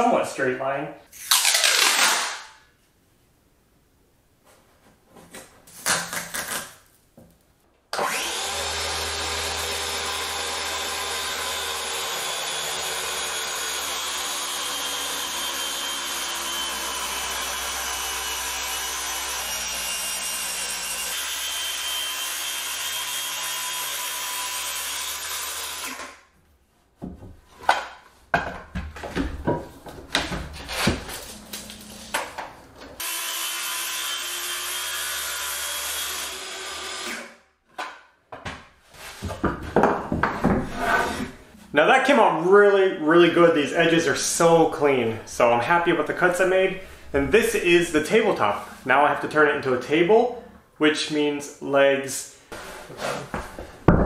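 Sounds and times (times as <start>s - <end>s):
circular saw cutting wood: 8.0s - 26.2s, 33.0s - 37.4s, 40.7s - 41.4s, 43.3s - 48.9s
wooden knocks and clatter: 27.0s - 31.1s, 37.7s - 40.9s, 53.3s - 54.0s.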